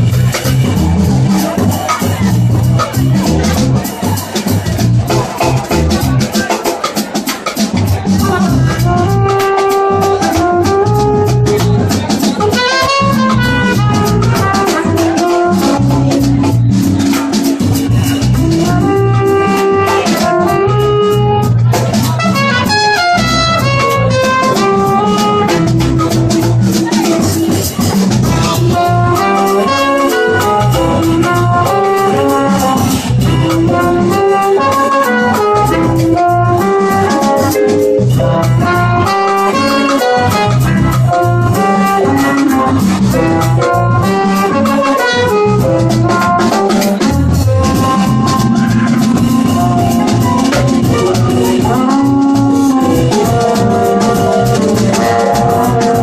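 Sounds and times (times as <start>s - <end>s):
drum kit with cymbals: 0.0s - 56.0s
rhythm section: 0.0s - 56.0s
trombone: 0.0s - 56.0s
trumpet: 0.0s - 56.0s.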